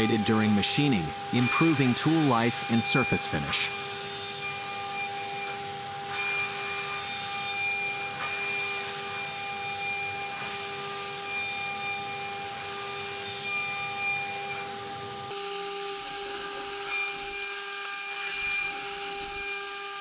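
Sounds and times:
hiss of metal cutting: 0.0 - 15.4
milling cutter high whine: 0.0 - 20.0.

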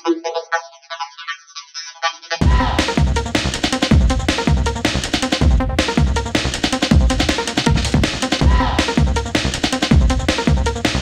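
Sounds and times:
deep bass drum: 2.4 - 11.0
music with steady drum beat: 2.4 - 11.0.

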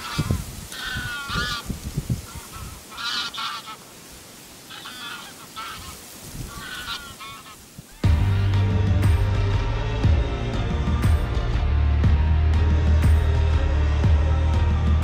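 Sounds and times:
wind rumble on microphone: 0.0 - 2.8
goose call honking: 0.0 - 3.9, 4.7 - 8.8.

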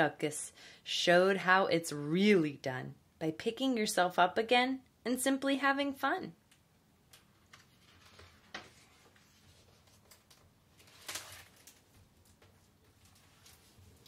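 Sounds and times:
book pages rustling: 7.2 - 14.0.

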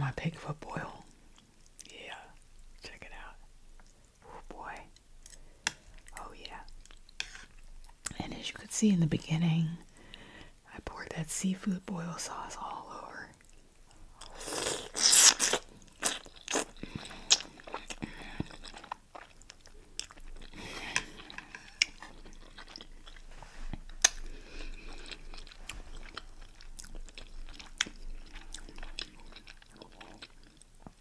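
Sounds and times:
wet chewing: 13.3 - 31.0.

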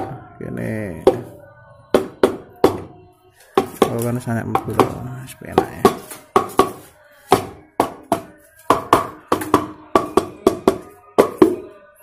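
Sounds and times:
wooden stick knocking on metal: 3.6 - 11.7.

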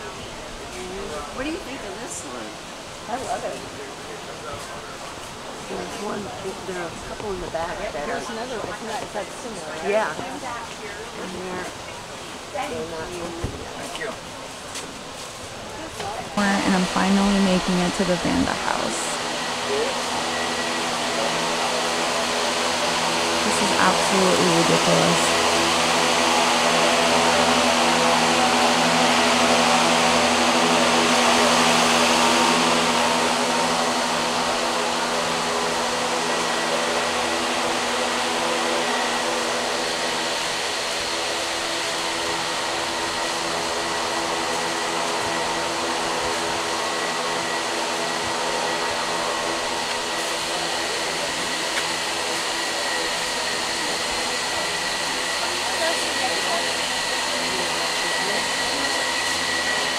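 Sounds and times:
ventilation fans rushing air: 0.0 - 59.9
motor hum: 15.9 - 59.9.

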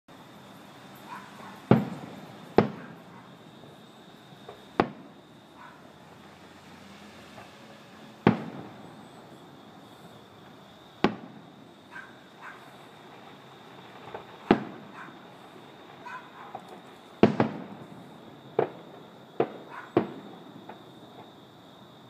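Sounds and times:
firework shells bursting: 1.1 - 3.8, 7.3 - 21.2.

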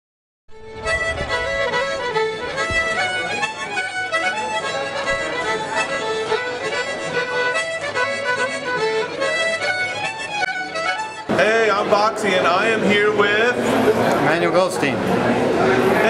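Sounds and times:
music of held notes and chords: 0.6 - 11.4.

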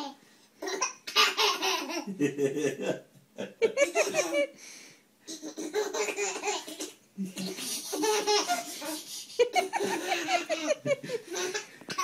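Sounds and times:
baby laughing: 0.6 - 2.2, 3.7 - 4.5, 5.3 - 12.0.

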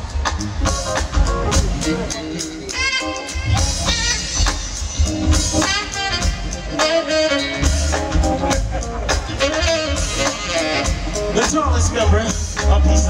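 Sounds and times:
drum kit: 0.0 - 13.0
saxophone lines: 1.8 - 11.4
electric bass: 7.4 - 13.0.

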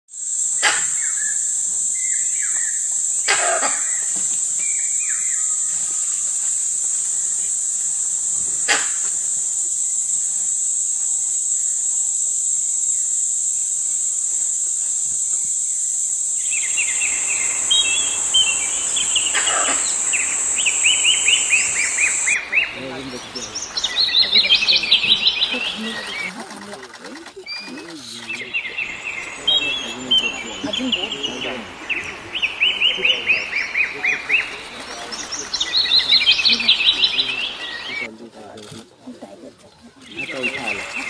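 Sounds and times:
insect drone: 0.1 - 41.0
bird chirping: 0.6 - 6.4, 15.7 - 38.1, 39.9 - 41.0.

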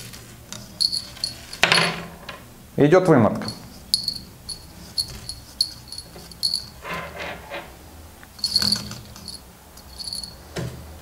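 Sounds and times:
small bell tinkling: 0.8 - 1.6, 3.4 - 6.8, 8.4 - 10.4.

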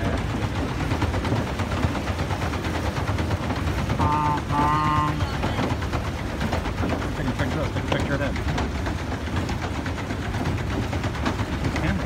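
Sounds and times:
paddle wheel rattling clatter: 0.0 - 12.0
horn-like tone: 4.0 - 5.1.

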